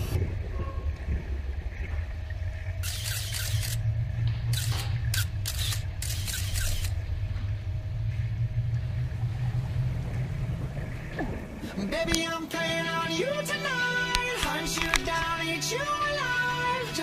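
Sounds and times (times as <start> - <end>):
muffled underwater rumble: 0.0 - 12.8.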